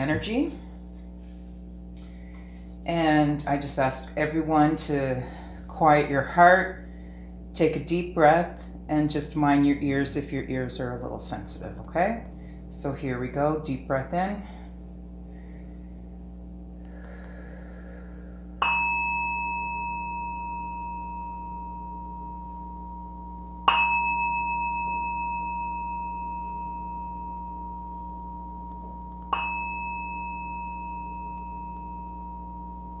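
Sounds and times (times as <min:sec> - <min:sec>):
metal singing bowl ringing: 0:01.8 - 0:12.9, 0:18.4 - 0:33.0.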